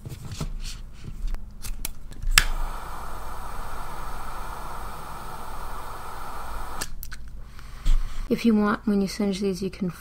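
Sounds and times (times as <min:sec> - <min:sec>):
lighter clicking: 0:02.3 - 0:07.0
lighter flame hissing: 0:02.3 - 0:07.0.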